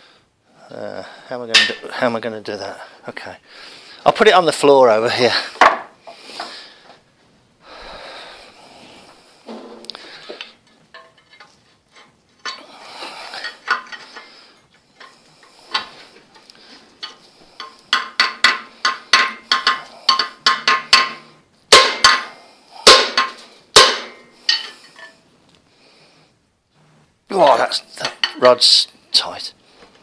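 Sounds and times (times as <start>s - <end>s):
hammer striking metal: 1.6s - 1.9s, 17.6s - 25.1s
metal knocks and scrapes: 9.4s - 12.6s.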